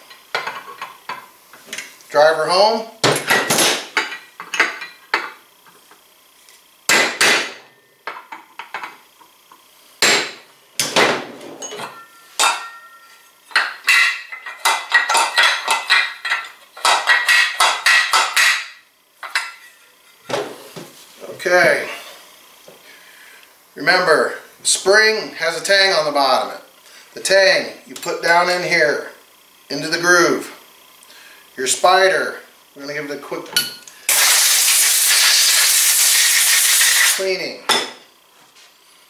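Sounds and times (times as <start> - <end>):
hammer striking steel punch: 6.9 - 7.6, 10.0 - 11.0
faint metallic ring: 11.6 - 13.4.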